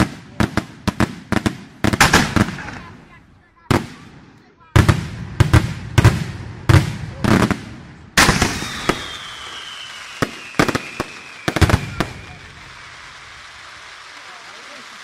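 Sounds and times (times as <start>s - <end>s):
firework shells bursting: 1.8s - 3.0s, 8.2s - 15.0s
firework whistle falling in pitch: 8.4s - 12.6s.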